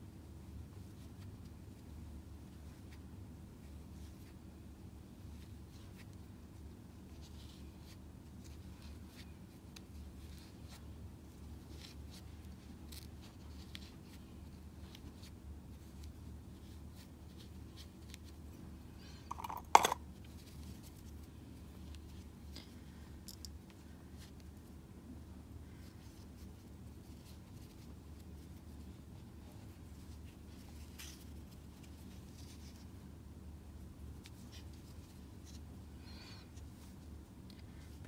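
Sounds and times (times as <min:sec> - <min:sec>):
steady low hum: 0:00.0 - 0:38.0
crochet hook scratching yarn: 0:07.1 - 0:14.2.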